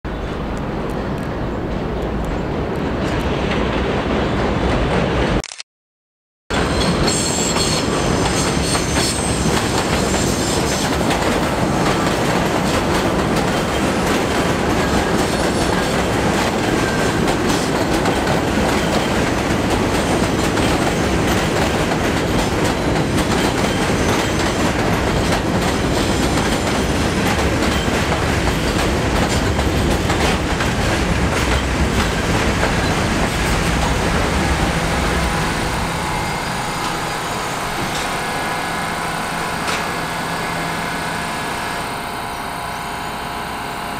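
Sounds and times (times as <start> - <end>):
subway train rumbling: 0.1 - 5.4, 6.5 - 43.9
high wheel squeal: 6.6 - 11.0, 34.4 - 43.9.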